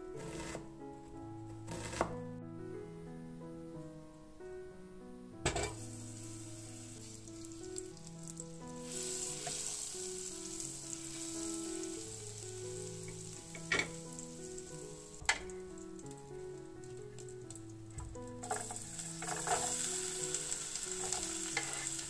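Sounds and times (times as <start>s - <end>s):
soft background music: 0.0s - 22.0s
butter sizzling in saucepan: 5.4s - 22.0s
wooden spatula stirring: 18.0s - 20.3s, 20.9s - 22.0s.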